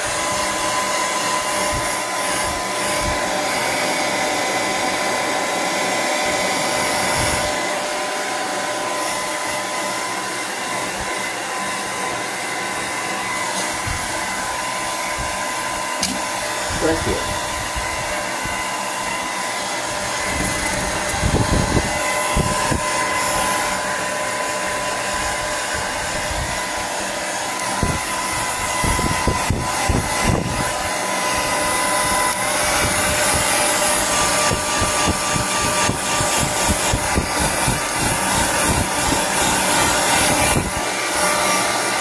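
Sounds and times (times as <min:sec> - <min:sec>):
hair dryer blowing: 0:00.0 - 0:42.0.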